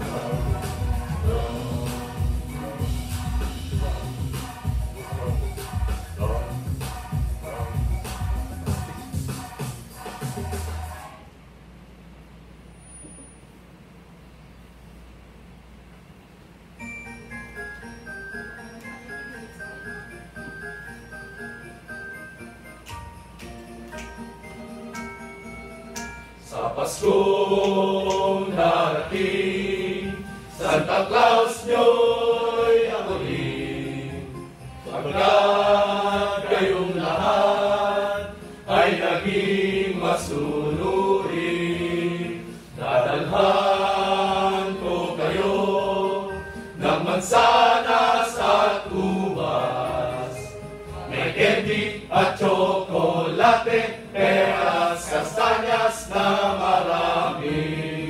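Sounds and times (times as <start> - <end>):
male choir singing: 0.0 - 11.2, 26.4 - 58.0.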